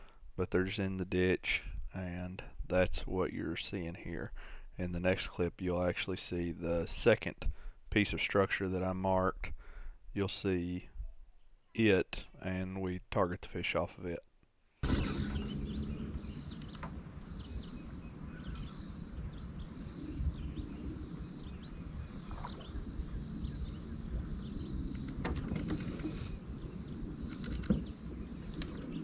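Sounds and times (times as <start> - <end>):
low rumble: 14.8 - 29.0
faint high chirp: 14.9 - 22.8
sharp clicks: 16.5 - 17.0, 24.9 - 26.4, 27.3 - 27.9, 28.5 - 28.8.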